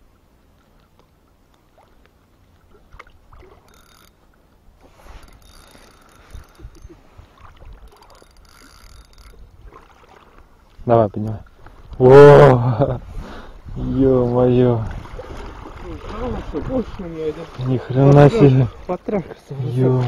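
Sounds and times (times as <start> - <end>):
water splashing and sloshing: 0.0 - 20.0.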